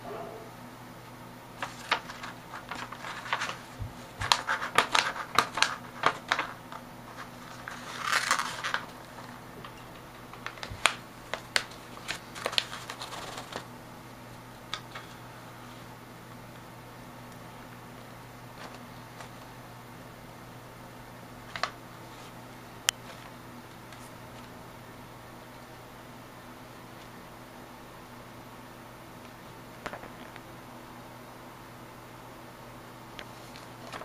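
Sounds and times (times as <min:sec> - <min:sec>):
paper rustling and crackling: 0:01.6 - 0:13.7, 0:18.5 - 0:19.6, 0:21.4 - 0:24.6, 0:33.2 - 0:34.0.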